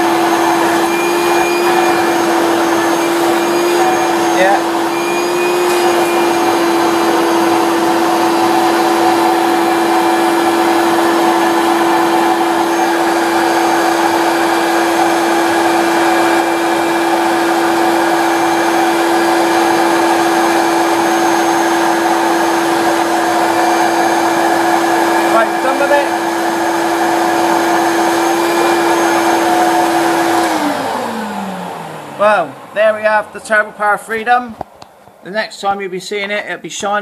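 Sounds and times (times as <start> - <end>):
vacuum cleaner running: 0.0 - 35.1.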